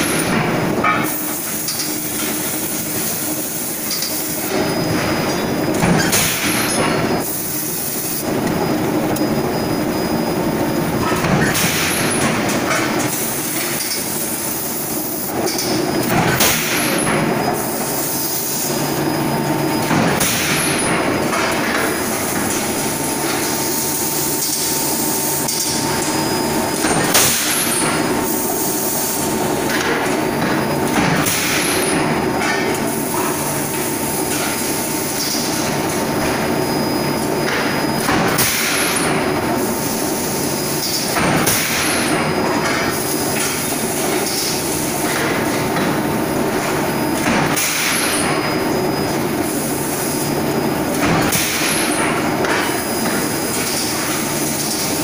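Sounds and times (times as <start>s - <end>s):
machinery din and hum: 0.0s - 55.0s.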